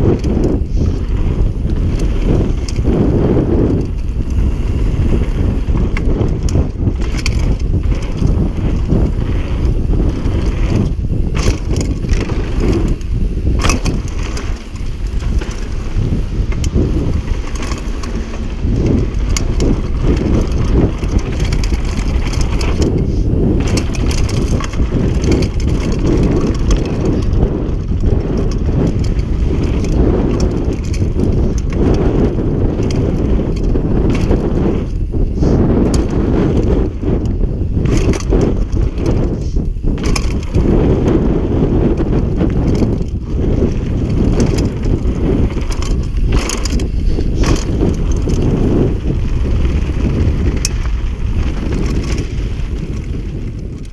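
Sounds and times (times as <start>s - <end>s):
tyres crunching over dirt: 0.0s - 53.9s
wind buffeting microphone: 0.0s - 53.9s
bike clattering knocks: 5.6s - 35.0s, 35.7s - 49.4s.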